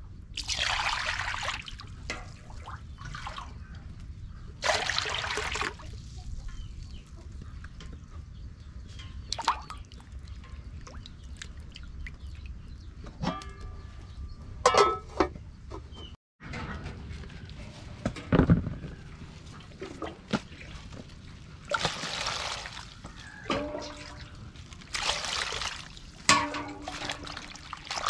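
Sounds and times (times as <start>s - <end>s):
water pouring: 0.4s - 3.4s, 4.6s - 5.9s, 20.8s - 28.0s
water splashing in metal basin: 0.4s - 3.6s, 4.6s - 6.1s, 9.2s - 12.4s, 19.6s - 28.0s.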